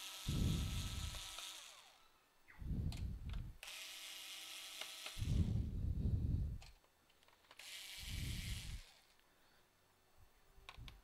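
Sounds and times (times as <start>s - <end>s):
electric screwdriver whirring: 0.0s - 2.0s, 3.6s - 5.6s, 7.6s - 9.1s.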